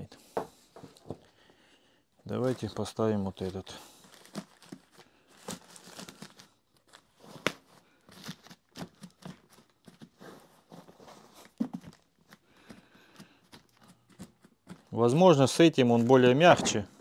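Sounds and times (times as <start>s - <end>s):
dust bag rustling and crinkling: 2.3s - 8.7s.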